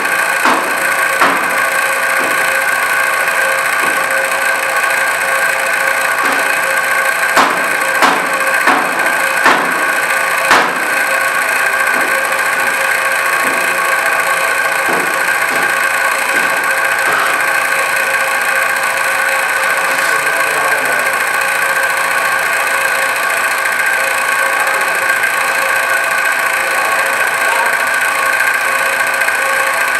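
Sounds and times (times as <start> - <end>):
machine hum with whine: 0.0 - 29.9
cleaver chopping on cutting board: 7.4 - 9.8, 10.5 - 10.8.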